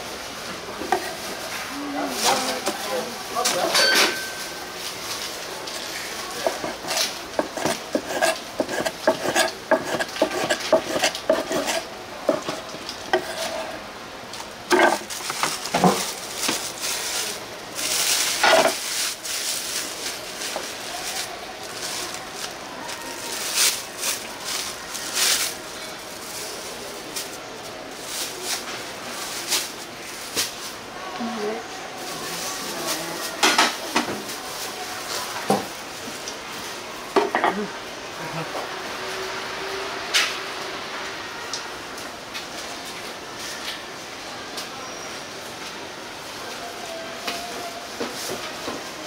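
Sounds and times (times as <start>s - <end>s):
metal dishes scraping and clattering: 6.4s - 13.8s, 14.7s - 16.0s, 18.4s - 18.8s.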